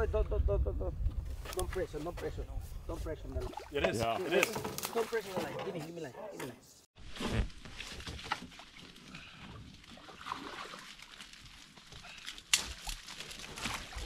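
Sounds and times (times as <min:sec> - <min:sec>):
branches and leaves rustling: 0:01.2 - 0:14.0
water sloshing: 0:03.3 - 0:06.0, 0:07.5 - 0:14.0.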